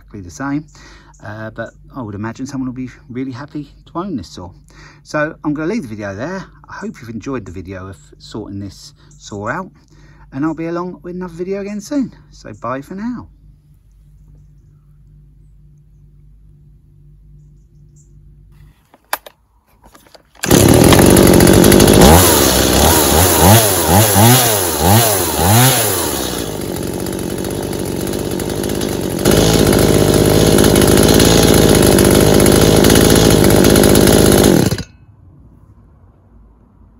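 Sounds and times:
chainsaw revving: 20.4 - 34.9.

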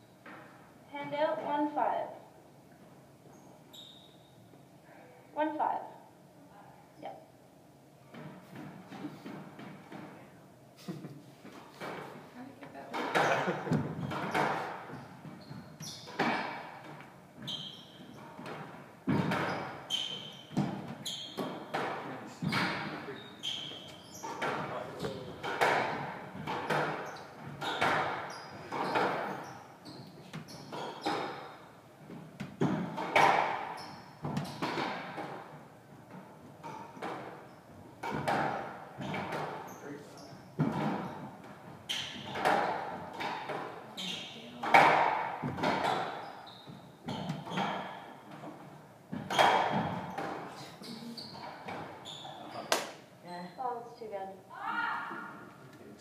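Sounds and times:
shoes squeaking on wooden floor: 3.2 - 4.6, 11.4 - 52.9
rackets striking ball: 12.9 - 15.4, 18.2 - 22.9, 23.5 - 29.6, 30.4 - 37.4, 38.0 - 39.6, 40.6 - 46.3, 47.0 - 50.5
squash ball smacking walls: 12.9 - 15.4, 16.0 - 22.9, 24.2 - 29.4, 30.3 - 39.7, 40.6 - 43.8, 44.6 - 46.3, 47.0 - 50.5, 51.3 - 53.0.

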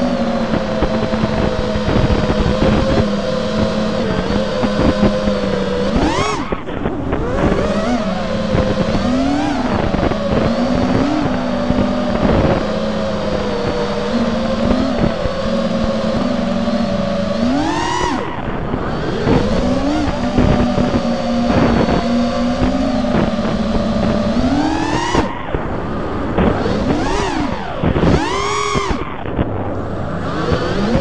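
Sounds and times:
drone motors whining: 0.0 - 31.0.

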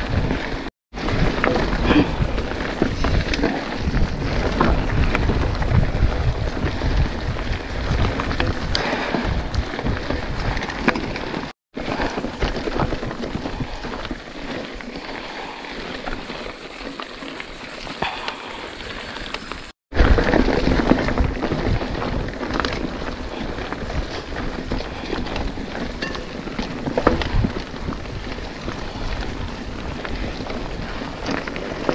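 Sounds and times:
wind on microphone: 0.0 - 11.5, 20.0 - 31.9
bike rattling and knocking: 0.0 - 31.9
bike tyres crunching over dirt: 0.0 - 31.9.

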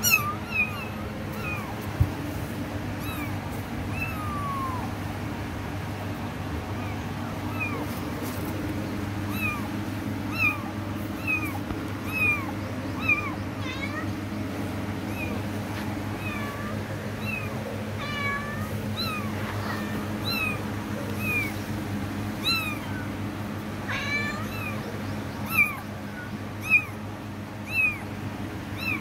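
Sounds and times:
kitten meowing: 0.0 - 1.8, 3.0 - 5.0, 6.8 - 8.0, 9.3 - 9.7, 10.3 - 14.1, 15.1 - 15.4, 16.2 - 21.6, 22.4 - 23.1, 23.8 - 24.8, 25.4 - 27.0, 27.6 - 28.1, 28.8 - 29.0.

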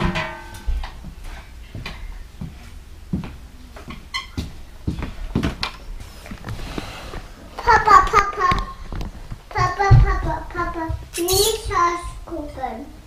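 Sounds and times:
objects knocking and clunking: 0.0 - 1.2, 3.9 - 11.1.

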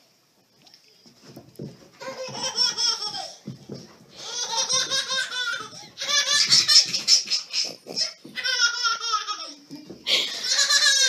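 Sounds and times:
baby laughing: 2.0 - 3.5, 4.2 - 11.0.

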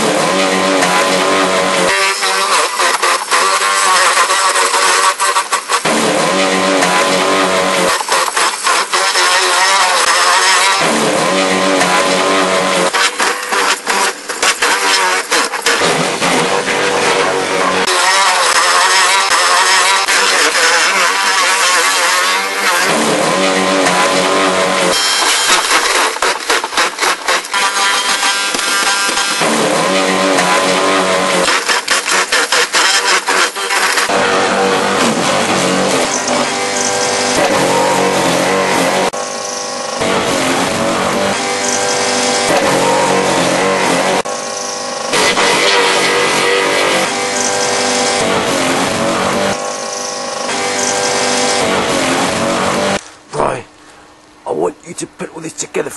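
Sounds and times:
garden shredder grinding branches: 0.0 - 53.6
wood cracking: 1.6 - 11.0, 12.7 - 17.2, 17.8 - 30.6, 31.2 - 34.2.

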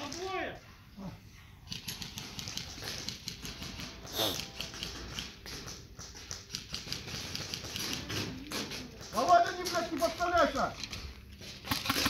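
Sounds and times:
airsoft guns firing: 11.6 - 12.0.

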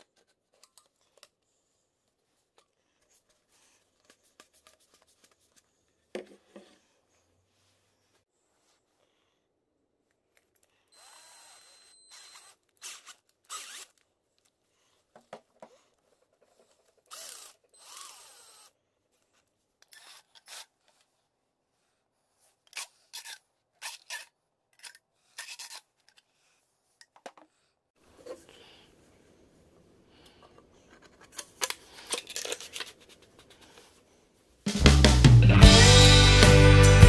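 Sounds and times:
cordless drill running: 11.0 - 13.8, 17.1 - 18.7
clicks and scrapes of metal rod: 30.4 - 33.6.

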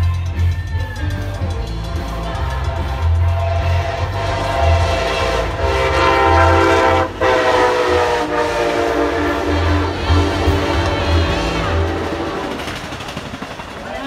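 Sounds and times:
train passing: 1.0 - 14.0
train air horn chord blasts: 1.8 - 12.8.

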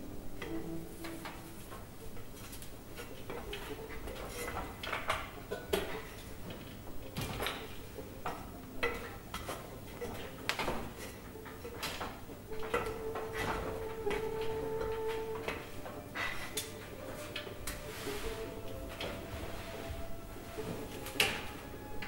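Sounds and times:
steady humming tone: 12.2 - 22.0.

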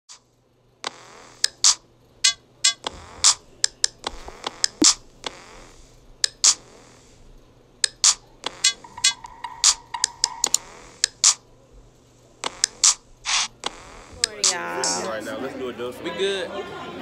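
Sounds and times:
faint low hum: 0.2 - 15.9
sharp clicks and snaps: 0.8 - 5.5, 6.2 - 6.6, 7.8 - 11.4, 12.4 - 14.6.

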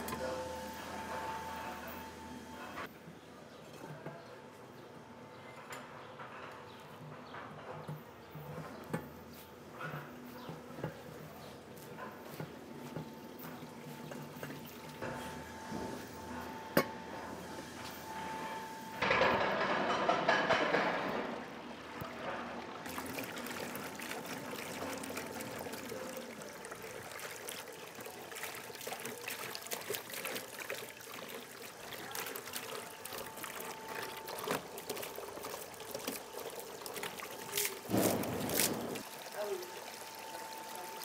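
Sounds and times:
fountain water trickling into basin: 10.4 - 15.4, 21.4 - 41.0.

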